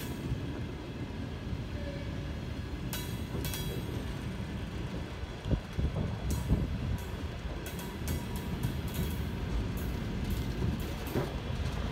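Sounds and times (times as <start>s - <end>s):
train wheels rumbling on rail: 0.0s - 11.9s
sharp metallic clacks: 2.8s - 4.2s, 5.8s - 11.9s.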